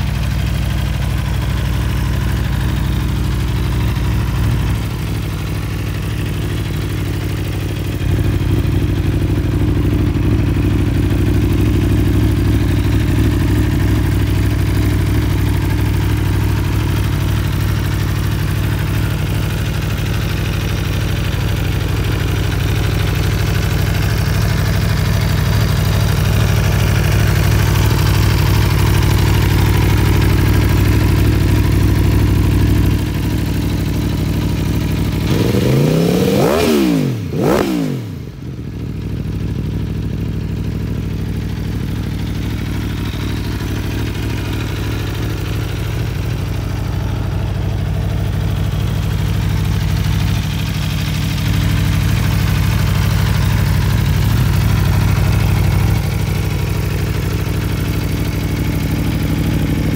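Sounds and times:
motorcycle engine idling and revving: 0:00.0 - 0:59.9.

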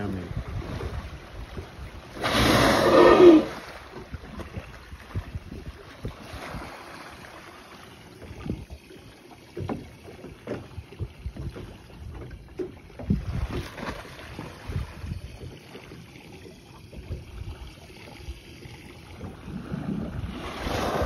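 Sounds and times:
wind buffeting microphone: 0:00.0 - 0:06.7, 0:08.2 - 0:08.9, 0:10.6 - 0:15.7
water slapping against boat hull: 0:00.0 - 0:07.5, 0:08.1 - 0:21.0.

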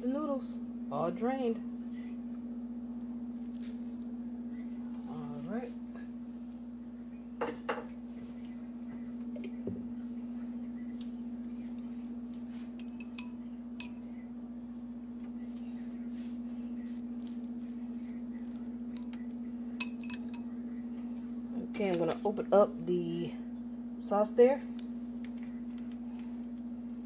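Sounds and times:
steady low hum: 0:00.0 - 0:27.0
chopsticks clinking against bowl: 0:12.8 - 0:14.0, 0:19.8 - 0:20.5.

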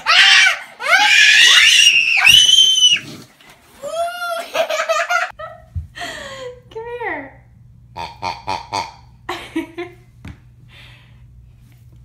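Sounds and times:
child screaming: 0:00.0 - 0:03.0
child giggling and laughing: 0:04.2 - 0:05.4.

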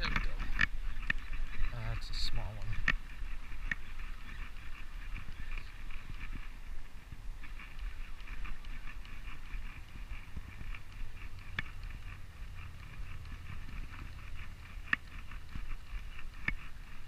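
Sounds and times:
fishing reel ticking: 0:00.0 - 0:17.0
sharp clicks: 0:07.4 - 0:17.0.

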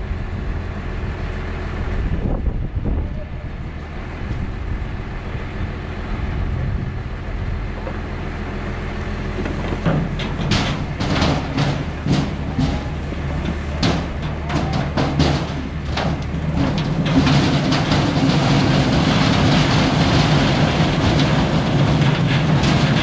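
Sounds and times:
engine running low: 0:00.0 - 0:23.0
sharp clanks and knocks: 0:09.4 - 0:23.0.

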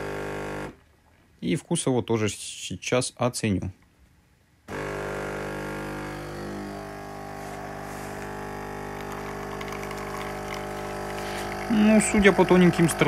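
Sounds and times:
espresso machine pump humming: 0:00.0 - 0:00.8, 0:04.7 - 0:13.0.

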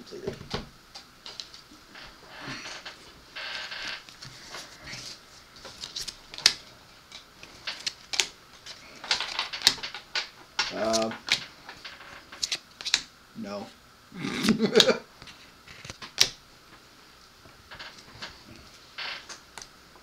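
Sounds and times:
cards rustling: 0:03.6 - 0:09.8, 0:10.6 - 0:13.0
playing cards clicking and snapping: 0:05.6 - 0:11.5, 0:12.3 - 0:13.1, 0:14.7 - 0:16.4.

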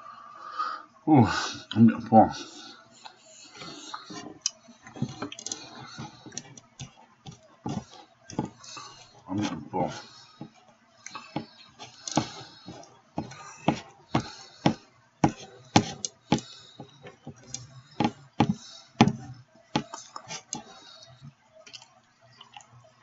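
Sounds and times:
eating clicks and knocks: 0:03.6 - 0:09.2, 0:09.9 - 0:22.7
plate being handled: 0:03.6 - 0:20.8.

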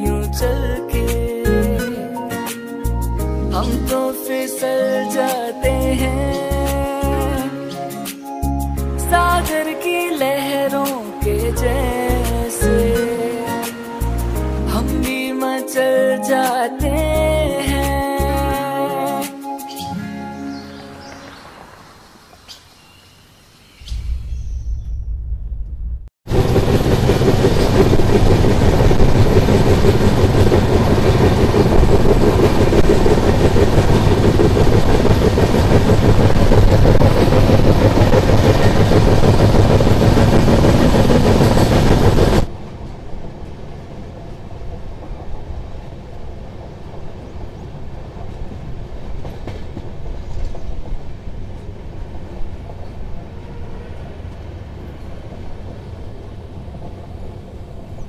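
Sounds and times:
wind rushing: 0:23.8 - 0:44.1
train wheels rumbling on rails: 0:23.9 - 0:58.0.

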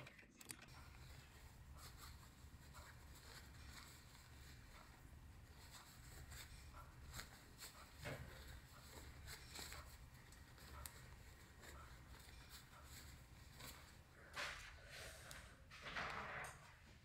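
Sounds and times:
fabric rustling and scratching: 0:00.7 - 0:17.0.

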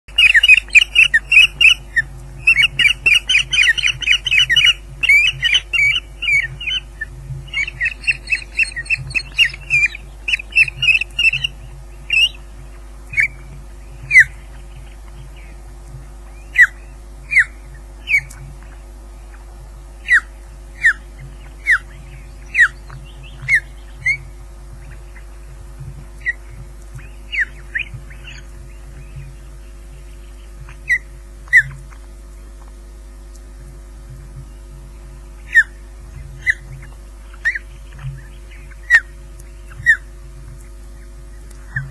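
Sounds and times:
osprey whistling calls: 0:00.1 - 0:12.5, 0:13.1 - 0:15.6, 0:16.4 - 0:18.4, 0:20.0 - 0:25.3, 0:26.2 - 0:29.5, 0:35.4 - 0:40.2.

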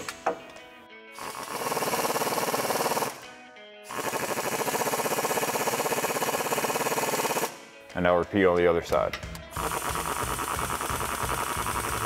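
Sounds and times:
impact wrench hammering rattle: 0:08.9 - 0:12.0.

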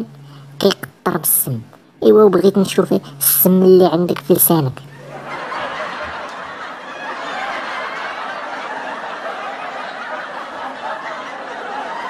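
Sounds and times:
audience laughing: 0:04.9 - 0:12.0.

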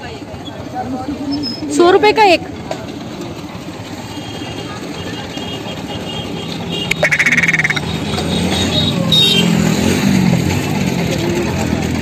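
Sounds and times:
murmur of street market: 0:00.0 - 0:12.0
short rapid rattling trill: 0:06.9 - 0:07.8.

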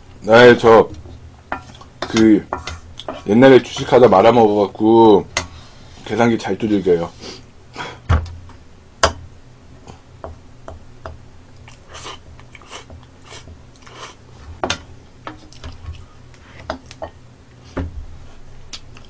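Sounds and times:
chewing: 0:11.6 - 0:14.2, 0:18.7 - 0:19.0.

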